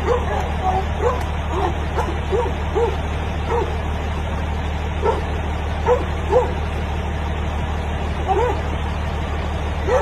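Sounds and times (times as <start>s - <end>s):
dog barking and yelping: 0.0s - 3.8s, 5.0s - 6.6s, 8.2s - 8.7s.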